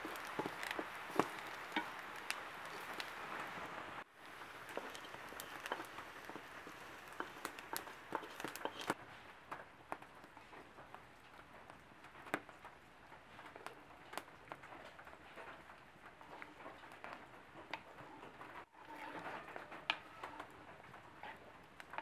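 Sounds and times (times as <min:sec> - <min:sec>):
spoon stirring thick curry: 0:00.0 - 0:09.0.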